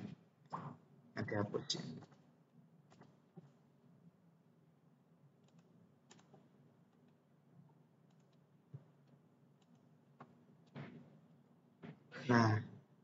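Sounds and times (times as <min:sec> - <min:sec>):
mouse and keyboard clicks: 0:02.9 - 0:03.2, 0:05.4 - 0:06.4.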